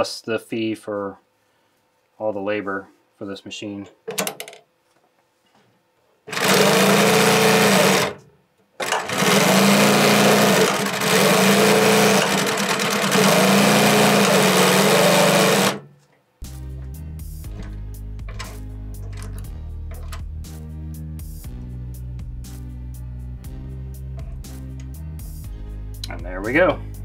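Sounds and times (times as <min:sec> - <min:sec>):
sewing machine sewing: 0:06.3 - 0:08.2, 0:08.8 - 0:15.9.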